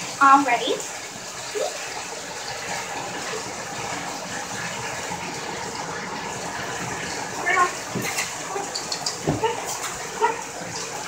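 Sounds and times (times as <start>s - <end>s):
water running into bathtub: 0.0s - 11.0s.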